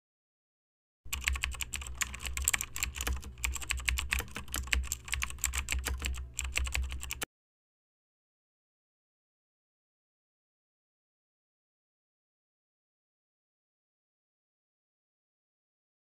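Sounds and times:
keyboard typing clicks: 0:01.1 - 0:07.3.

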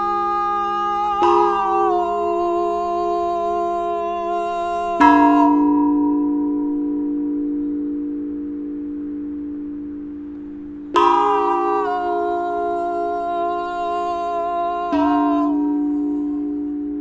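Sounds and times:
metal chime tubes ringing: 0:00.0 - 0:17.0.

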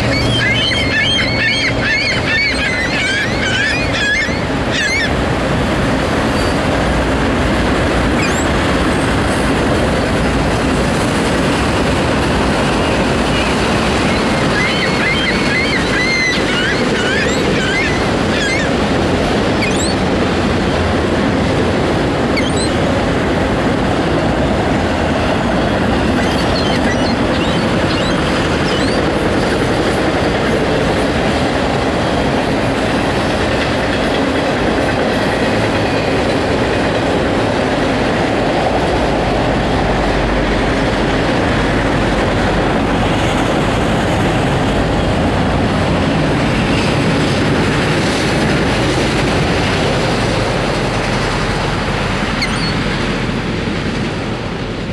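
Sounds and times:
high-pitched wheel squeals: 0:00.0 - 0:05.2, 0:06.3 - 0:06.7, 0:08.2 - 0:08.6, 0:12.7 - 0:20.1, 0:22.3 - 0:22.9, 0:25.3 - 0:29.7, 0:52.4 - 0:52.9
freight cars rumbling and rattling: 0:00.0 - 0:54.9.

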